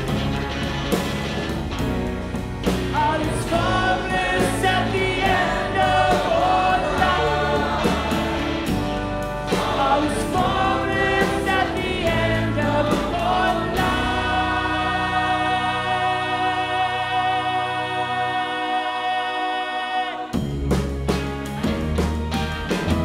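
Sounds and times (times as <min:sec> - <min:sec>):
drum hits: 0:00.0 - 0:14.2
live rock band with orchestra: 0:00.0 - 0:23.0
man singing lead: 0:02.9 - 0:08.6, 0:09.5 - 0:20.4
choir singing: 0:02.9 - 0:20.4.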